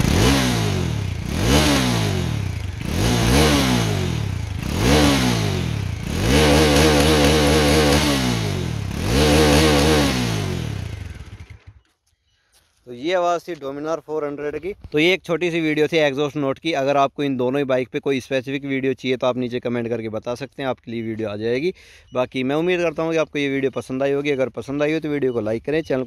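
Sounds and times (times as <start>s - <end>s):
motorcycle engine revving: 0.0s - 11.9s.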